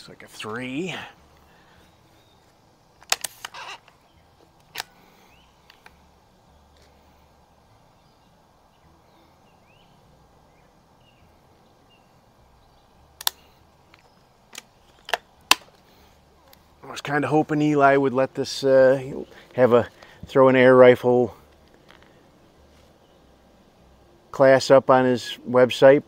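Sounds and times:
faint bird chirps: 1.5s - 2.5s, 3.5s - 15.0s
air rifle action clicking: 3.0s - 5.0s, 5.6s - 6.0s, 13.2s - 15.8s.

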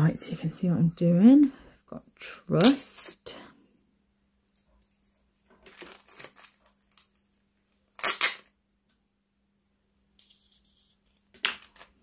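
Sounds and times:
soft plastic rustling: 4.5s - 8.0s.

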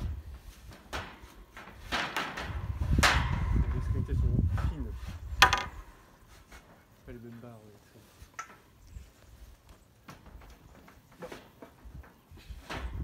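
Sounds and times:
wooden slat rubbing against wire mesh: 0.1s - 7.0s
sharp wooden knocks: 5.3s - 6.1s.

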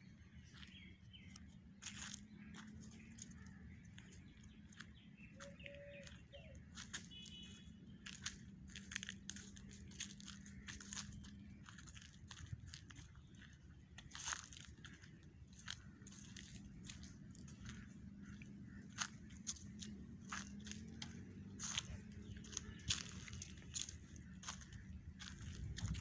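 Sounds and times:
bird calls: 0.0s - 26.0s
footsteps on dry leaves: 0.0s - 26.0s.

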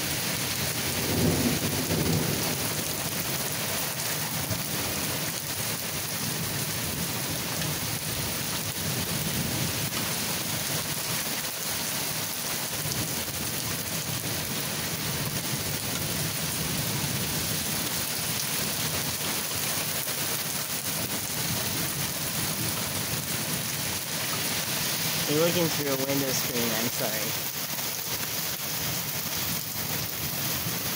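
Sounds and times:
steady rain falling: 0.0s - 30.9s
low rolling thunder: 0.8s - 3.6s.

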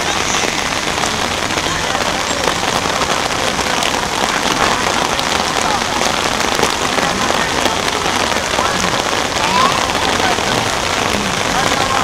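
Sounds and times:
rain on an umbrella: 0.0s - 12.0s.

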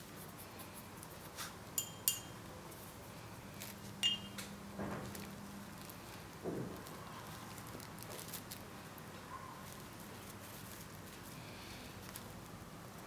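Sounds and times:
small tools clinking: 1.8s - 2.4s, 4.0s - 4.5s
soft handling ticks: 5.1s - 13.0s.

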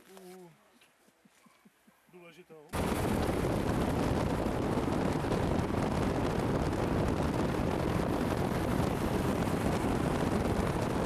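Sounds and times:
road and wind noise: 2.7s - 11.0s.

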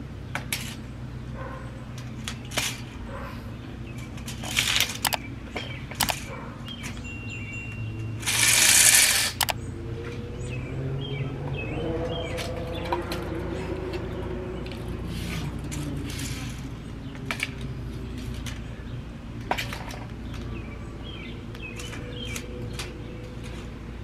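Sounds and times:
birds chirping faintly: 0.0s - 24.0s
clicks and taps on concrete: 15.5s - 18.6s.

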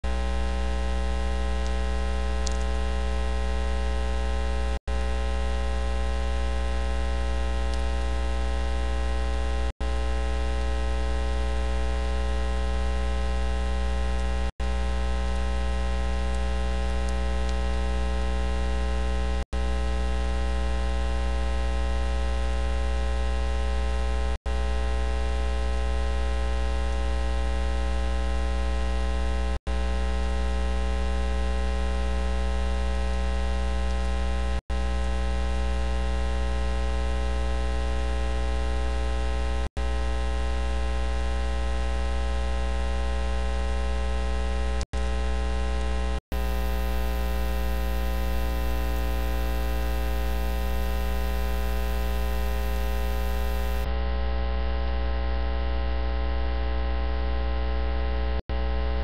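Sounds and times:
electrical mains hum: 43.4s - 53.9s.

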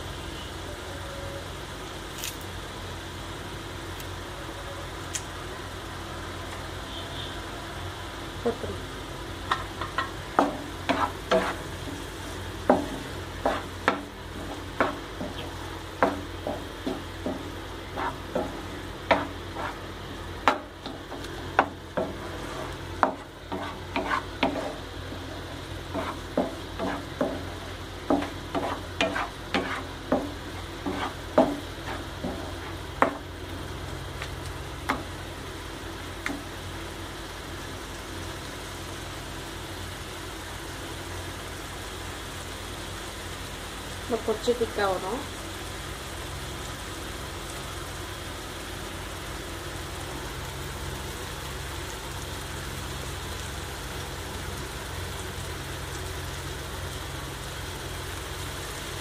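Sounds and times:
spatula scraping and tapping pan: 9.5s - 19.8s, 20.4s - 33.3s.

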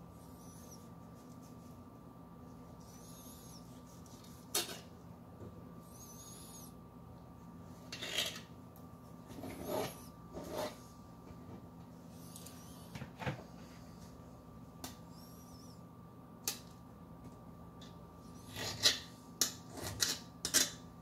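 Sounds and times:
steady low hum: 0.0s - 21.0s
knife scraping cutting board: 9.3s - 10.8s.

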